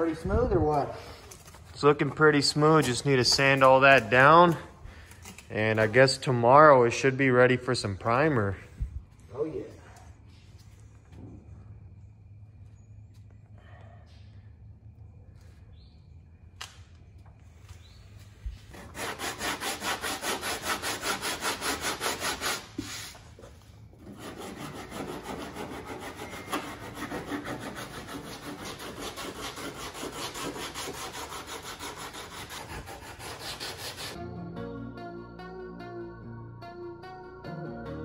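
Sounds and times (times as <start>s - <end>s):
hand sanding strokes: 18.2s - 34.2s.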